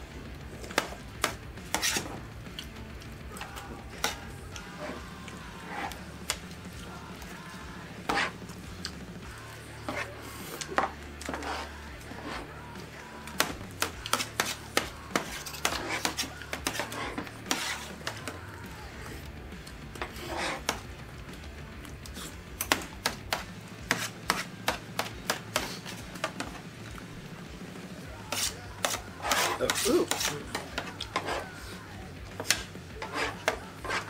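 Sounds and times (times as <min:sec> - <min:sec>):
cutlery clicking on pans and plates: 0:13.4 - 0:18.3, 0:28.3 - 0:31.5, 0:32.4 - 0:34.0.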